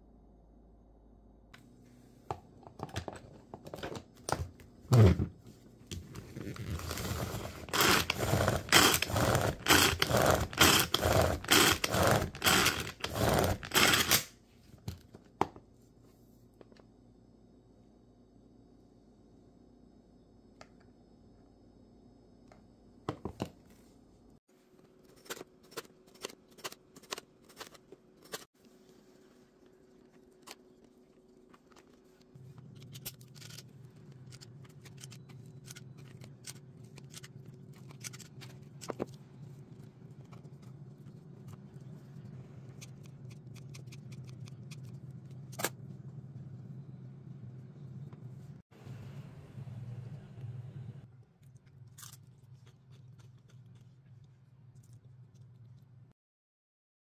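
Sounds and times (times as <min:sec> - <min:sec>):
food preparation handling: 0:06.0 - 0:14.2
steady low hum: 0:28.0 - 0:56.1.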